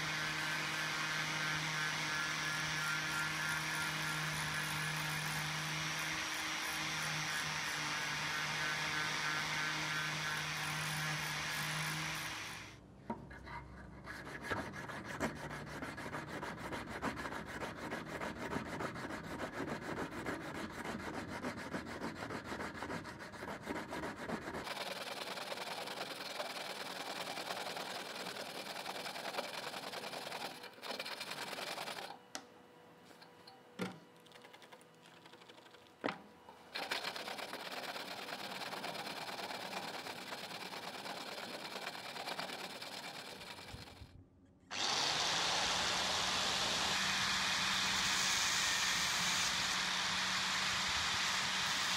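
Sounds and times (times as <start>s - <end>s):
angle grinder sanding metal: 0.0s - 12.7s, 44.7s - 51.9s.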